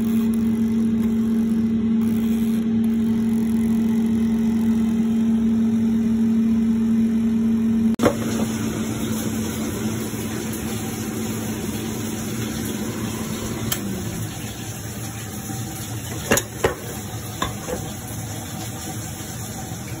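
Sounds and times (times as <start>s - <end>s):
steady hum: 0.0s - 20.0s
potatoes sizzling in hot oil: 8.0s - 20.0s
utensil tapping a pan: 16.2s - 17.9s.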